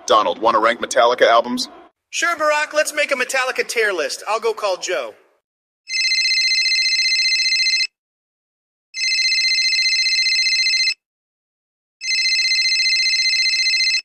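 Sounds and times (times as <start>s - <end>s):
telephone ringing with electronic trill: 5.9s - 7.9s, 9.0s - 11.0s, 12.0s - 14.0s.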